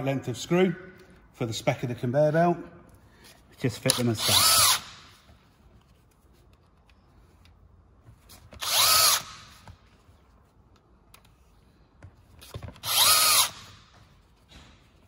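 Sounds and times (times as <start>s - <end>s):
cordless drill driving screws: 3.9s - 5.0s, 8.6s - 9.6s, 12.8s - 13.8s.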